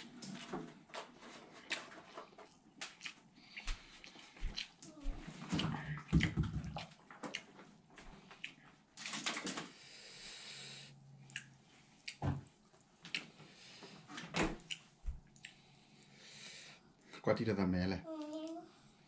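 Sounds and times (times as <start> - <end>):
wet chewing and lip smacks: 1.6 - 9.1, 11.2 - 16.1.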